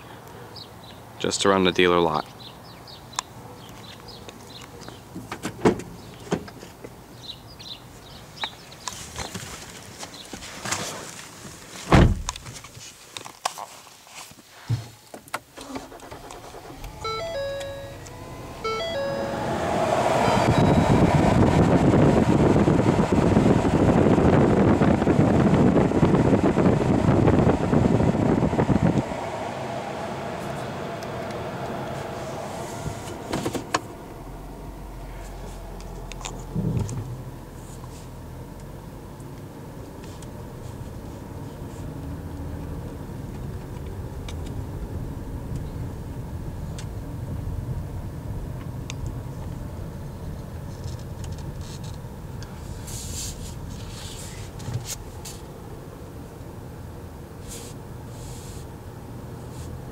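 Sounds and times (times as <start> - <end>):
heavy thump: 11.9 - 12.3
low thump: 11.9 - 12.3, 36.5 - 37.0
blower noise: 15.6 - 37.0
car cabin hum: 15.6 - 37.6
engine low rumble: 15.6 - 59.9
dashboard electronic chime: 17.0 - 21.4.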